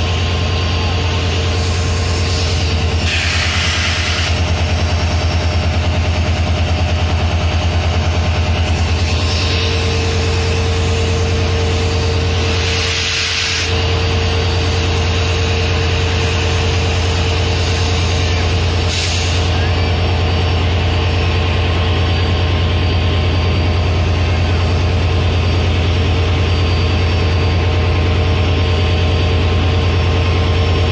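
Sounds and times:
diesel locomotives idling: 0.0 - 30.9
air hiss blasts: 2.2 - 4.4, 12.5 - 13.8, 18.9 - 19.5.

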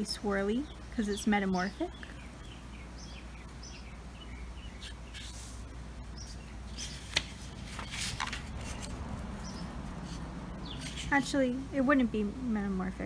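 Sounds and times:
low steady hum: 0.0 - 13.0
marker squeaking on paper: 4.8 - 5.6
paper rustling: 4.8 - 11.2.

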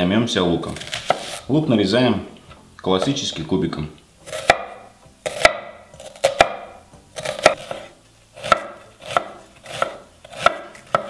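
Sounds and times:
knife dicing onion on board: 0.8 - 1.4, 4.3 - 11.0.

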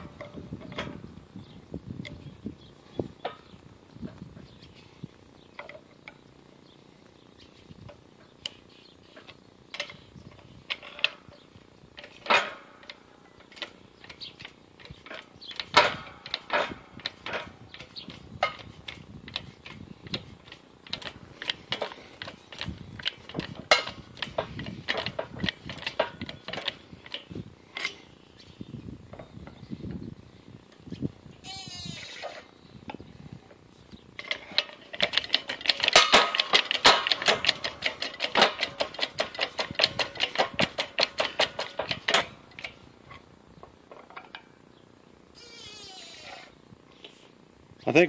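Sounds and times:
metallic clicks and clanks: 7.9 - 28.1, 34.2 - 43.2, 43.9 - 44.5.

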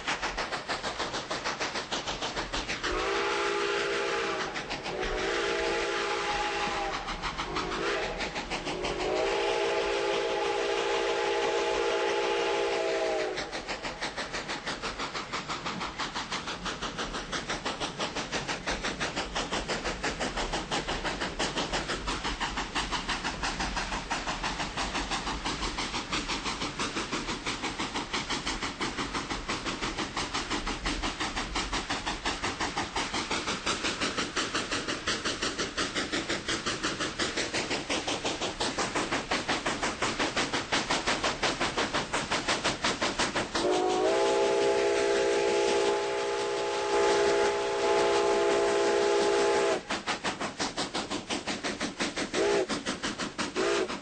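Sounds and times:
train wheels clattering on rails: 0.0 - 54.0
train horn blasts: 3.0 - 6.9, 9.0 - 13.4, 43.6 - 49.8.

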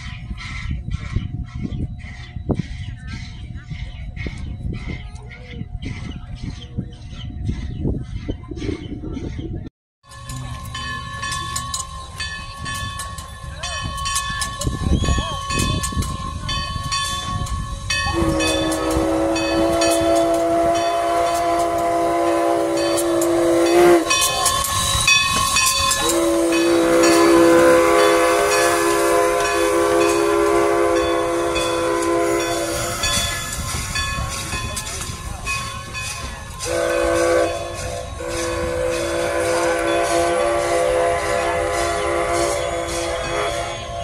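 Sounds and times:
steam hissing: 15.4 - 44.0
steam whistle blasts: 17.9 - 34.5, 36.6 - 44.0.

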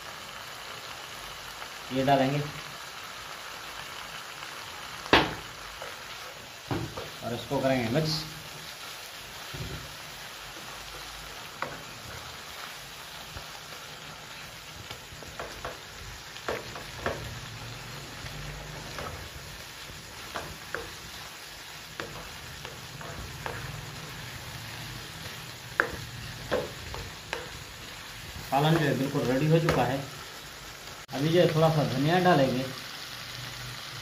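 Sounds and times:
food sizzling in a wok: 0.0 - 34.0
spatula scraping and tapping pan: 15.2 - 17.4, 20.1 - 21.2, 21.9 - 27.7.

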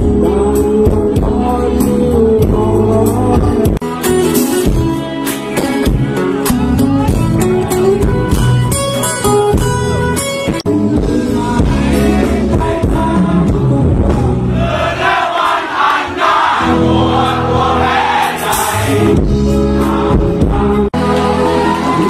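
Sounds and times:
rock band playing live: 0.0 - 15.1, 16.6 - 22.0
crowd singing along: 10.7 - 22.0.

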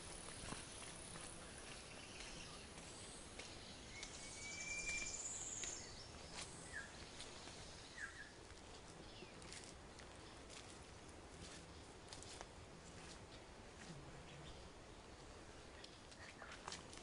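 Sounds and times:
birds calling: 0.0 - 8.4.

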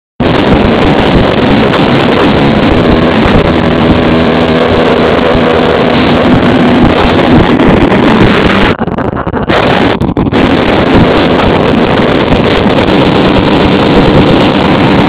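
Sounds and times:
car engine at high revs: 0.2 - 15.0
wind noise on microphone: 0.2 - 15.0.

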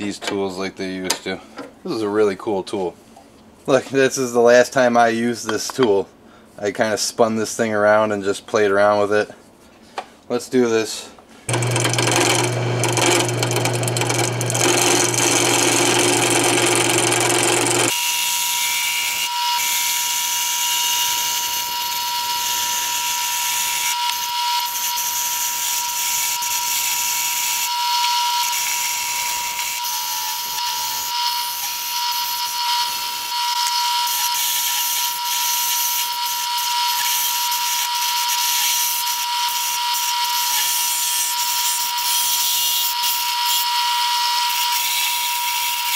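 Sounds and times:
wood lathe running: 11.5 - 18.0.

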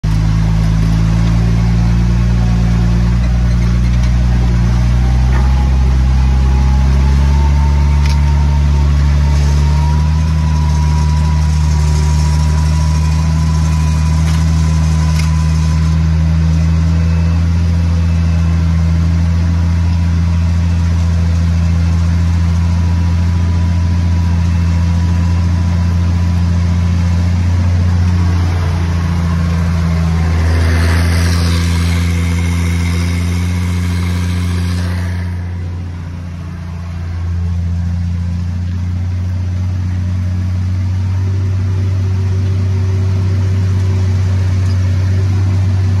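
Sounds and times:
tractor diesel engine under load: 0.0 - 46.0.

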